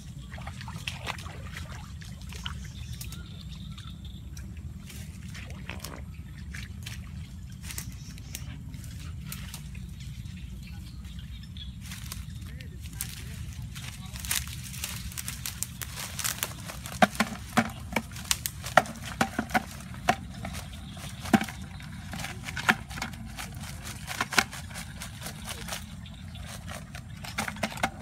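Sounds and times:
low rumble: 0.0s - 28.0s
crabs dropping into bucket: 14.3s - 28.0s
crabs rattling in wire trap: 14.4s - 28.0s.

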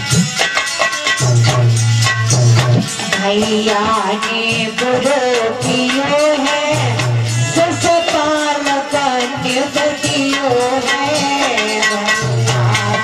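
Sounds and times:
hand drum beat: 0.0s - 13.0s
harmonium: 0.0s - 13.0s
woman singing devotional song: 3.0s - 13.0s.

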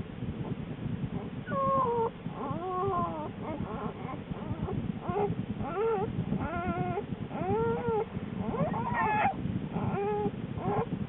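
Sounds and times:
bear cubs crying: 7.4s - 9.4s.

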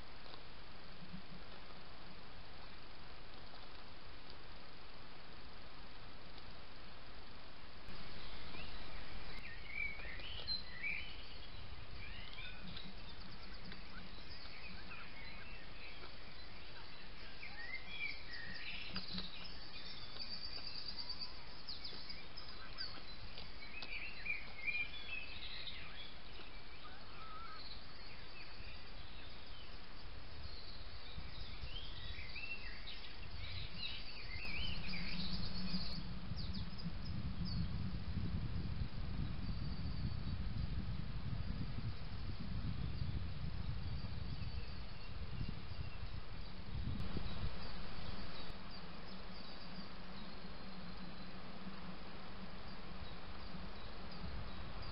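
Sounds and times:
steady background hiss: 0.0s - 54.9s
birds chirping and trilling: 8.0s - 37.8s, 43.0s - 52.0s.

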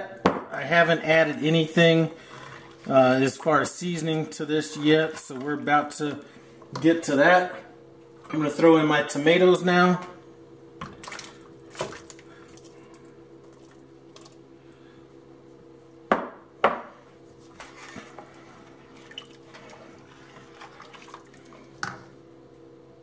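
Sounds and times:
faint steady hum: 0.0s - 23.0s
spoon stirring liquid with splashes: 17.9s - 22.1s.

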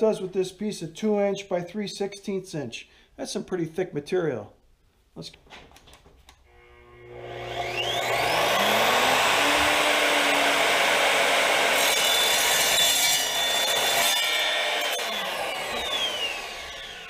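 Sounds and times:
miter saw spinning up whine: 6.5s - 17.0s
saw blade cutting steel: 6.6s - 17.0s.

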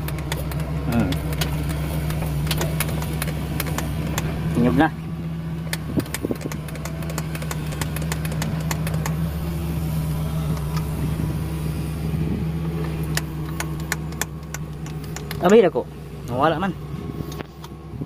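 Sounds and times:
sharp clicks: 0.0s - 4.3s, 5.6s - 9.3s, 12.8s - 15.7s
diesel engine idling: 0.0s - 18.0s.

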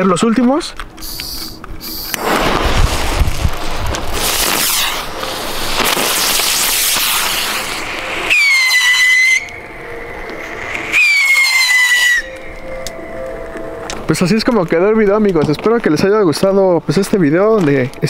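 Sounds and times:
shrill firework whistles: 1.0s - 2.8s, 4.2s - 9.6s, 10.6s - 12.7s
fireworks fizzing hiss: 1.0s - 9.5s, 10.3s - 12.3s.

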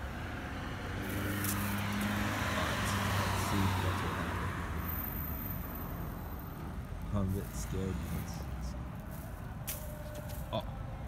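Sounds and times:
car passing by: 0.0s - 6.9s.

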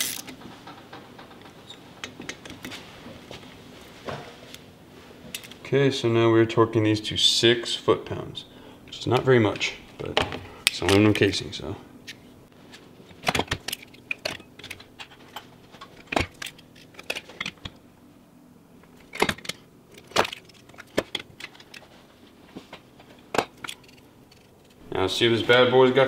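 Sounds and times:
torque wrench clicking: 0.0s - 0.3s.

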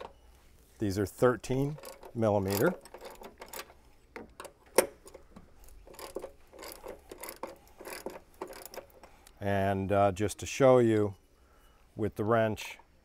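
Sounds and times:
socket ratchet clicking: 1.7s - 9.2s.

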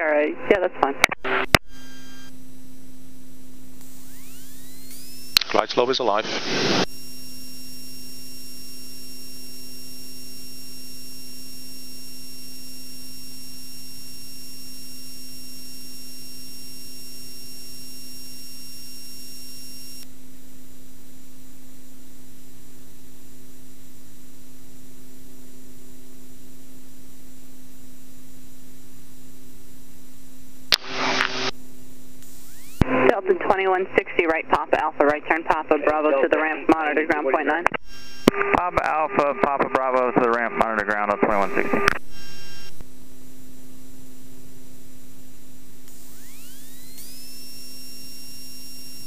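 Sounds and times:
intercom hum and hiss: 5.4s - 6.9s, 30.7s - 31.5s, 32.8s - 42.8s.

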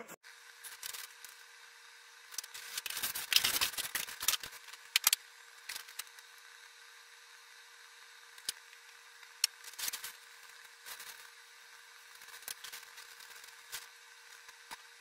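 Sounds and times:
styrofoam scraping and rustling: 2.4s - 4.8s.

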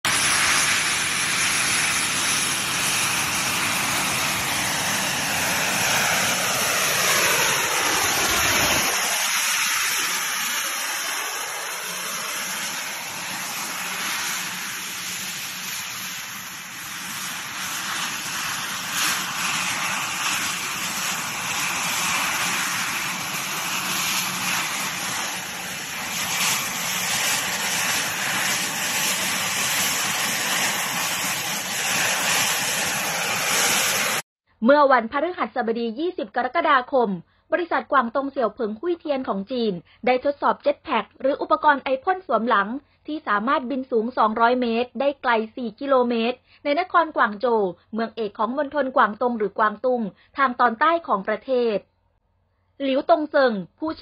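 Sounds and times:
jet engines rushing: 0.0s - 34.2s
high hiss: 0.1s - 34.2s.

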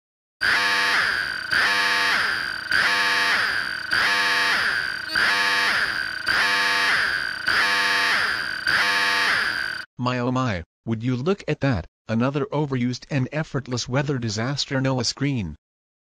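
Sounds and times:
warbling emergency alarm: 0.4s - 9.9s.

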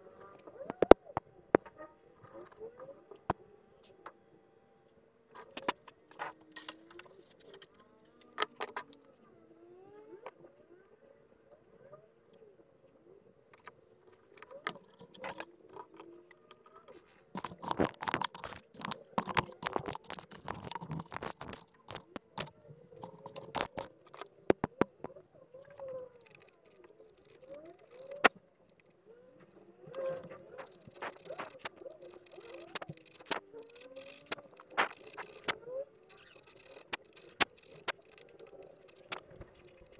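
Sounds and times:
metal parts clicking and rattling: 14.4s - 16.1s, 17.4s - 24.8s, 25.7s - 39.9s.

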